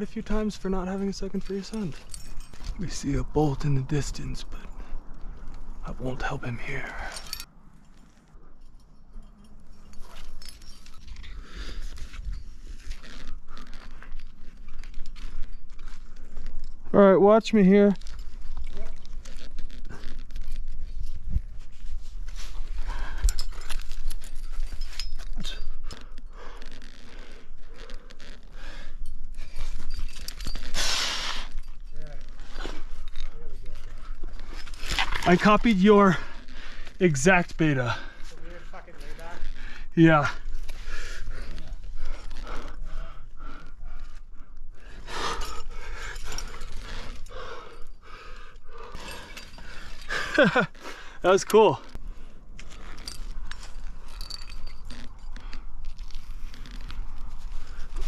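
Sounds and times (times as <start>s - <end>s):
climbing gear clinking: 0.0s - 58.0s
man breathing hard: 40.8s - 51.2s.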